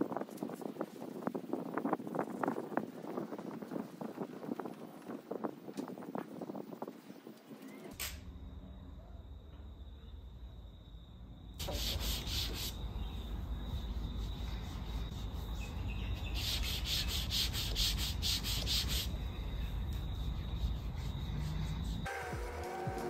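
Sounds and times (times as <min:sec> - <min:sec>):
clay bar rubbing car paint: 0:11.6 - 0:12.9, 0:13.7 - 0:23.0.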